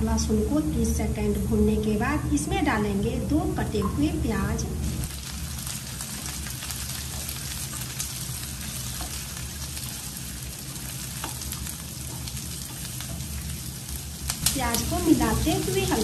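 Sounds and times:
onions sizzling in oil: 0:04.9 - 0:16.0.

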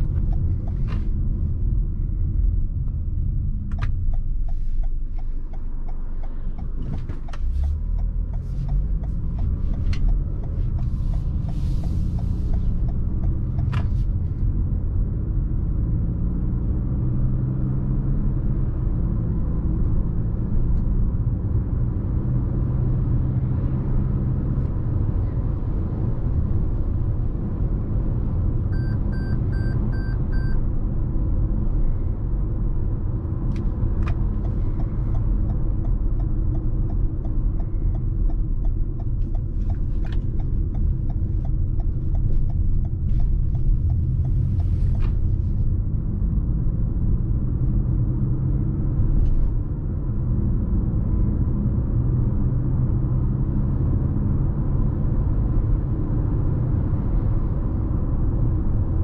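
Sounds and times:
turn signal ticking: 0:00.0 - 0:16.3, 0:24.4 - 0:31.4, 0:32.4 - 0:50.2
car engine accelerating: 0:00.0 - 0:59.0
road and tyre rumble: 0:00.0 - 0:59.0.

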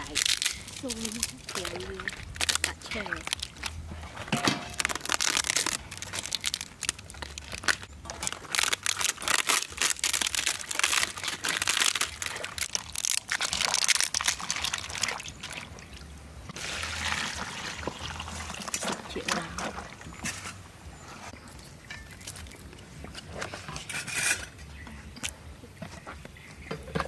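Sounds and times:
water splashing and trickling: 0:00.0 - 0:25.9.

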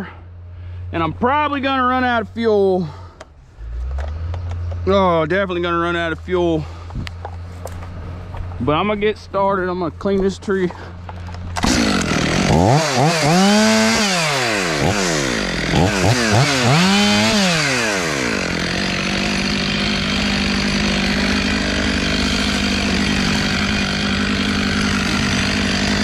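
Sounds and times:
chainsaw revving: 0:11.4 - 0:26.0.

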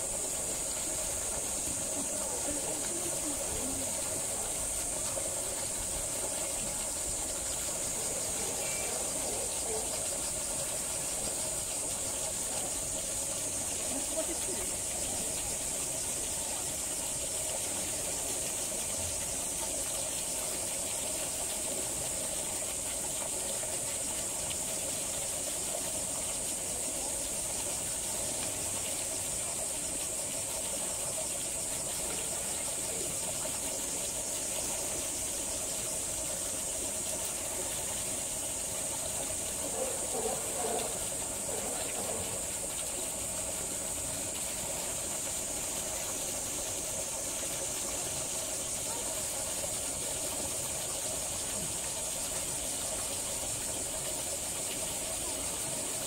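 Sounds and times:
high-pitched hiss: 0:00.0 - 0:56.0.

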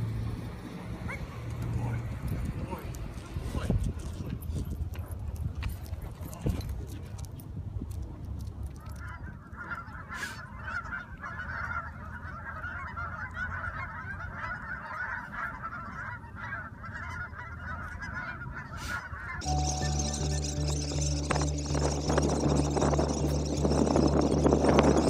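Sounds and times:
geese honking: 0:10.6 - 0:25.0.

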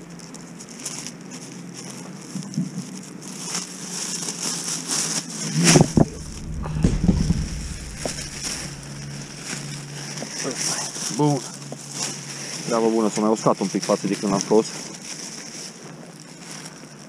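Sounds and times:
plastic sacks rustling: 0:00.8 - 0:17.0
low rumble: 0:05.6 - 0:10.4
heavy low thumps: 0:05.8 - 0:10.1.

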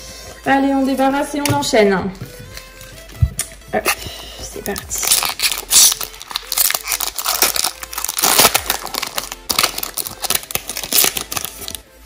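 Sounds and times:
foil wrapper crinkling: 0:04.6 - 0:11.8.

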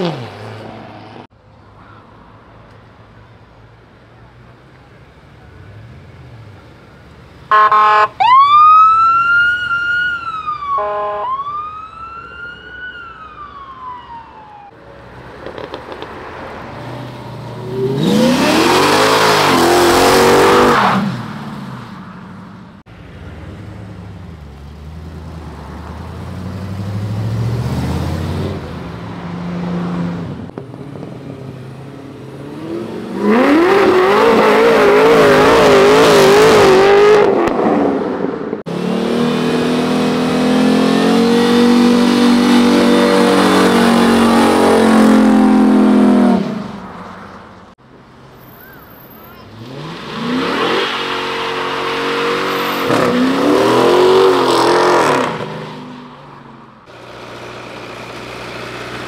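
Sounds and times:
car engines revving: 0:00.0 - 0:12.4, 0:14.5 - 0:59.0
police siren yelping and wailing: 0:07.5 - 0:14.8.

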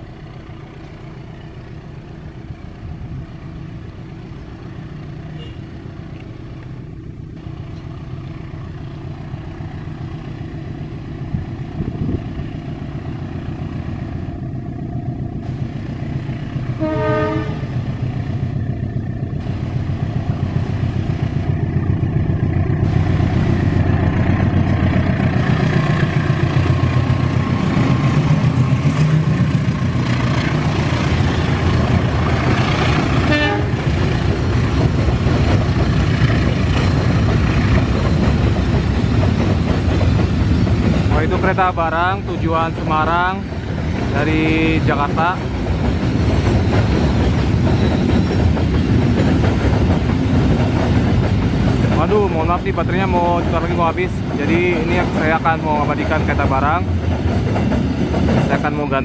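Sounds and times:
locomotive engine rumble: 0:00.0 - 0:59.0.

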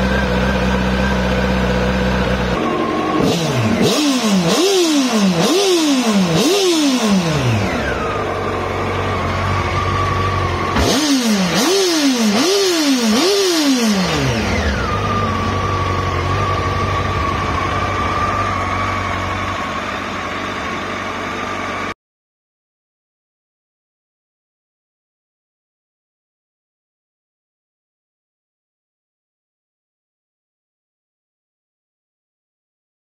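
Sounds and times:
motorcycle engine idling and revving: 0:00.0 - 0:22.0.

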